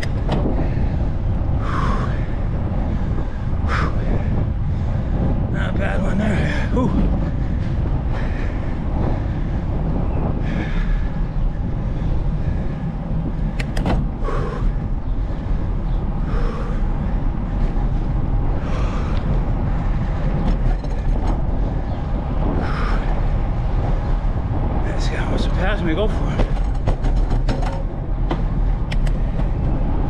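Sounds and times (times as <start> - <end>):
bicycle tyre noise: 0.0 - 30.0
wind rumble on microphone: 0.0 - 30.0
sharp clicks: 13.5 - 14.0, 28.9 - 29.2.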